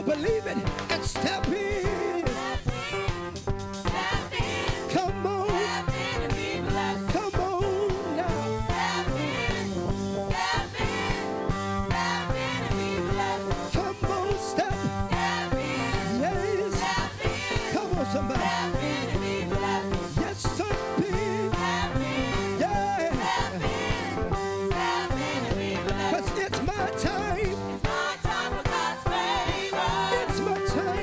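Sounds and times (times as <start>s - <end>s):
band playing: 0.0s - 31.0s
gospel singers: 0.0s - 31.0s
steady drum beat: 0.0s - 31.0s.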